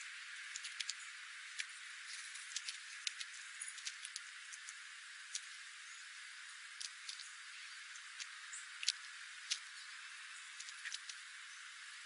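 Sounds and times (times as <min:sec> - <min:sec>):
steady hiss: 0:00.0 - 0:12.0
bird pecking seeds on gravel: 0:00.5 - 0:05.6, 0:08.0 - 0:11.3.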